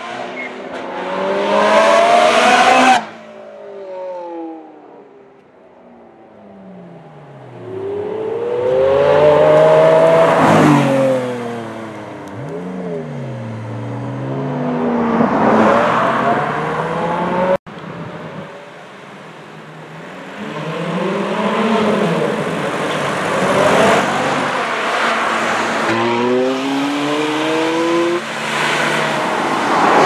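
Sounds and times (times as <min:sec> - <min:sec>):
car engine revving: 0:06.6 - 0:17.6, 0:20.3 - 0:30.0
cars accelerating past: 0:06.6 - 0:17.6, 0:20.3 - 0:30.0.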